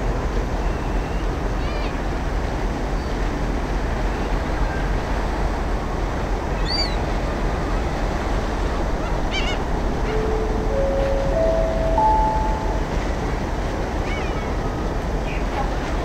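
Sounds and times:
gulls calling: 6.5 - 14.9.

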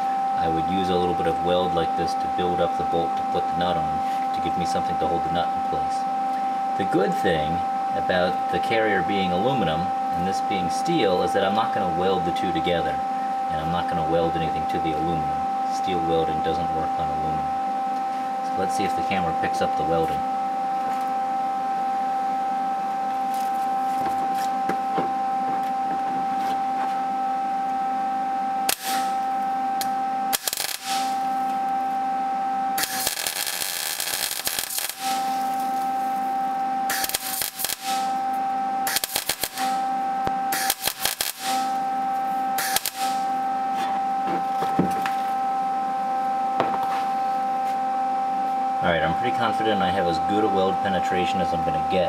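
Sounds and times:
steady high hum: 0.0 - 52.0
welder arc crackling: 28.7 - 31.6, 32.8 - 38.3, 38.9 - 41.9, 42.6 - 43.4.

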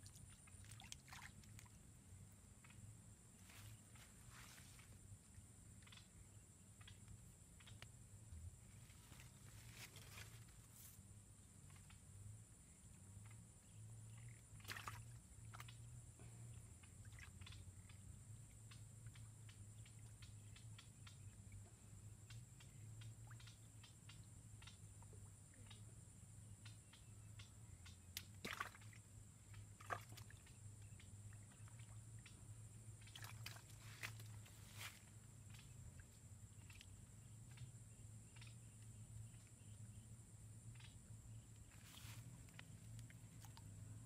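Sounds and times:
faint low hum: 0.0 - 44.0
faint ticks and clicks: 5.8 - 8.3, 34.0 - 39.9, 42.4 - 44.0.

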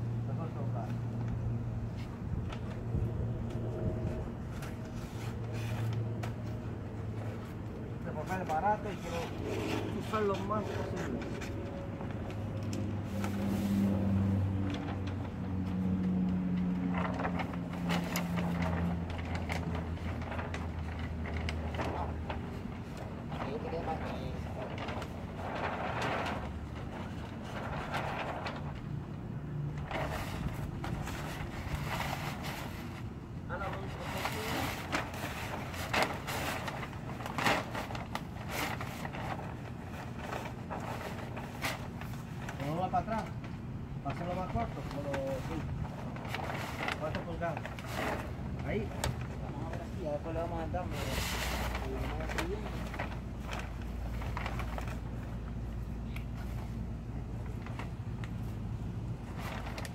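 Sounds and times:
vehicle engine humming: 0.0 - 33.9
steady low rumble: 0.0 - 50.9
fabric rustling and crinkling: 1.4 - 59.9.

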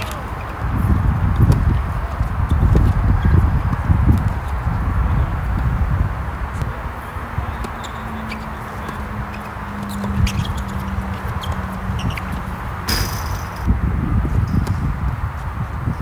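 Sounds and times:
racquets striking tennis ball: 7.5 - 13.7
tennis ball bouncing: 7.5 - 13.7
steady low rumble: 11.2 - 16.0.

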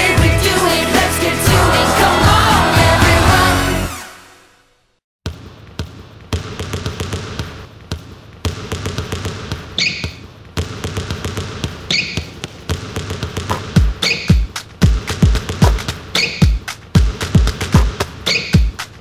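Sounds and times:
electronic dance music: 0.0 - 4.3, 13.5 - 19.0.

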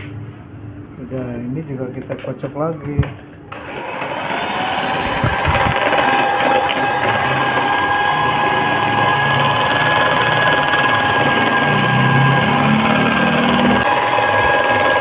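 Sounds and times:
electric hand mixer whirring: 3.5 - 15.0.

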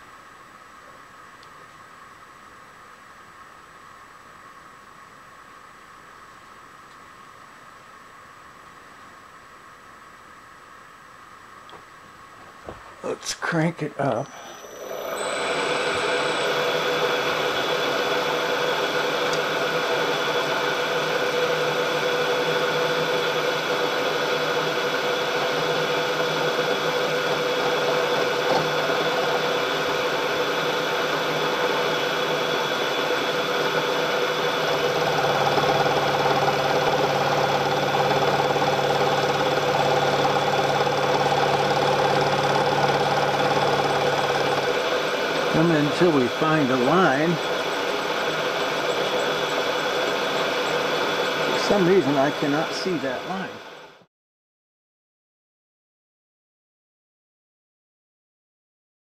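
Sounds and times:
milling machine cutting metal: 14.2 - 54.0.

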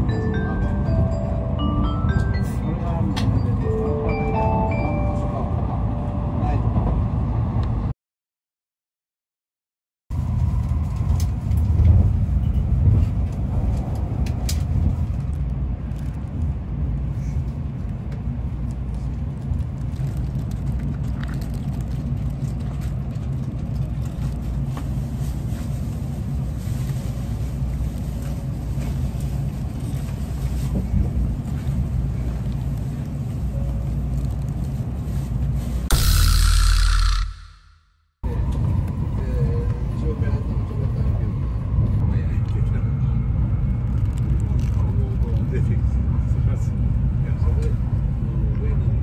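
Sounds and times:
train cabin rumble: 0.0 - 7.9, 10.2 - 21.0, 21.8 - 35.9.

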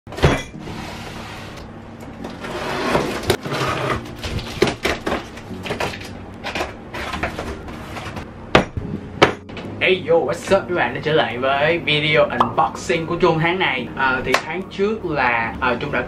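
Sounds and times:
scraping on cardboard: 2.4 - 4.1.

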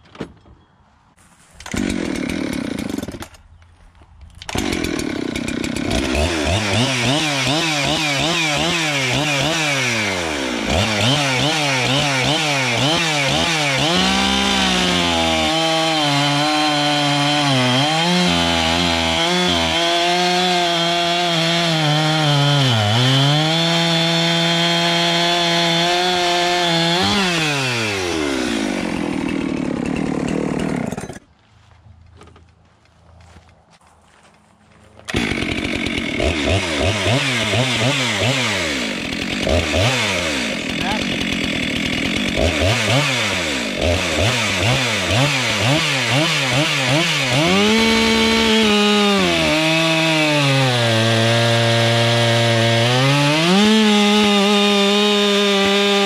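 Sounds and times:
chainsaw revving and cutting: 1.6 - 3.3, 4.5 - 31.3, 35.1 - 56.0.

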